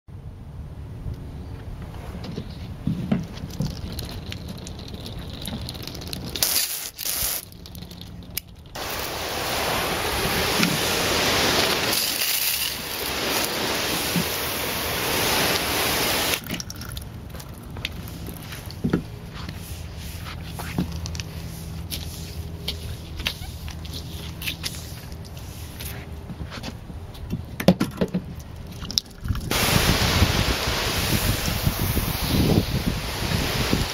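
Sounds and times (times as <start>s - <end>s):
hose spraying water: 3.4s - 26.0s, 29.4s - 33.9s.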